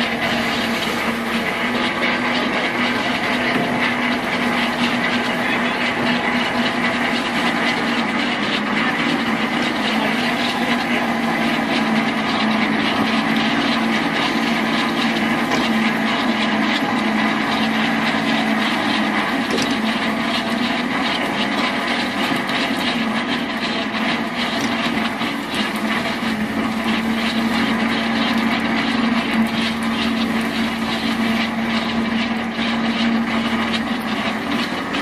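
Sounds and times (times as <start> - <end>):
machinery drone: 0.0 - 35.0.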